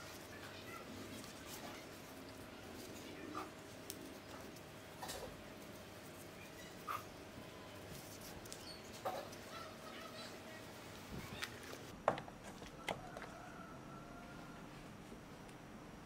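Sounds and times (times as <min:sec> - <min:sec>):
leaves rustling and crinkling: 0:00.0 - 0:12.8.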